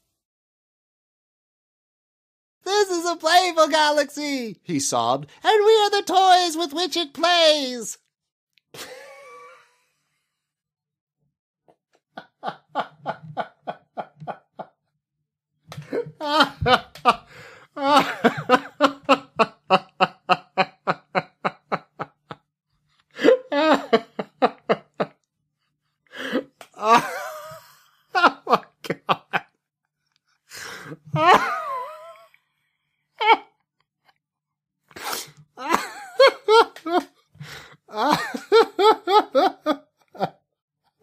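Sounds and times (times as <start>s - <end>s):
person laughing hard: 8.8s - 9.9s, 12.2s - 14.7s, 15.8s - 22.4s, 23.2s - 25.1s, 26.2s - 29.5s, 31.0s - 32.3s, 35.6s - 40.4s.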